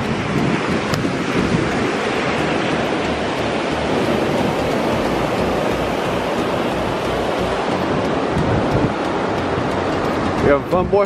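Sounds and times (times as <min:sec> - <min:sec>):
ocean surf breaking: 0:00.0 - 0:11.0
wind on microphone: 0:00.0 - 0:11.0.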